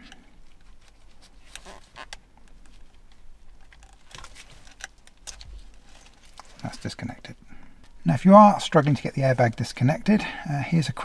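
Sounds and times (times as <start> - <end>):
plastic plug clicks and rustles: 0.0 - 6.6.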